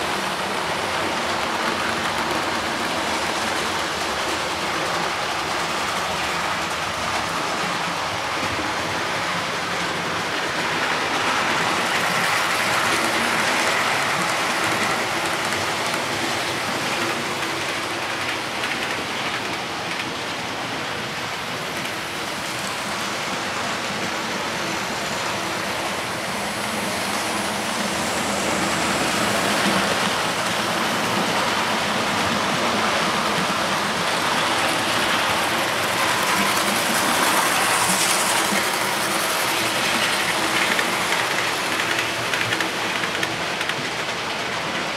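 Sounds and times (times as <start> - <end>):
model train wheels rolling: 0.0 - 44.9.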